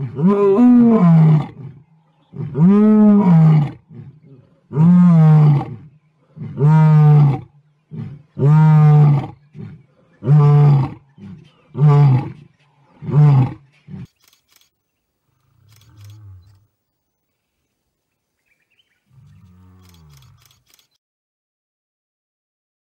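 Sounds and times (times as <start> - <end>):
lion roaring: 0.0 - 14.1.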